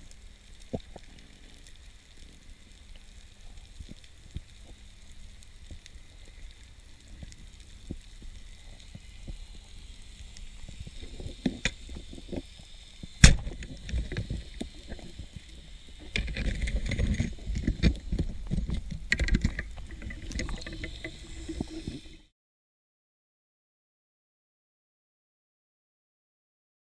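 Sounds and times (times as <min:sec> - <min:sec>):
faint underwater crackling: 0:00.0 - 0:22.3
speargun firing crack: 0:13.2 - 0:13.5.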